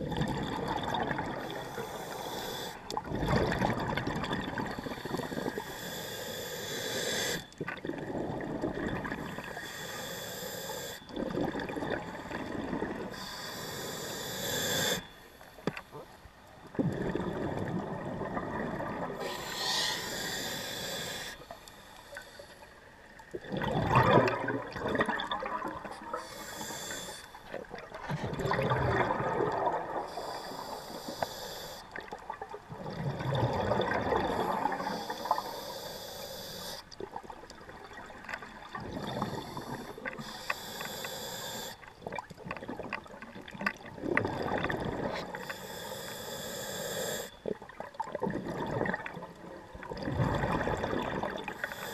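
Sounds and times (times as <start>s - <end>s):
exhaled bubbles underwater: 0.0s - 5.9s, 7.4s - 9.8s, 11.0s - 13.3s, 15.9s - 21.6s, 22.7s - 31.0s, 31.8s - 35.7s, 36.9s - 40.4s, 41.8s - 45.5s, 47.4s - 51.9s
regulator inhalation hiss: 1.6s - 2.9s, 4.8s - 7.4s, 9.5s - 11.0s, 13.2s - 15.1s, 19.2s - 22.6s, 26.2s - 27.4s, 30.1s - 31.9s, 34.6s - 36.8s, 39.3s - 41.9s, 45.3s - 47.4s, 51.5s - 51.9s.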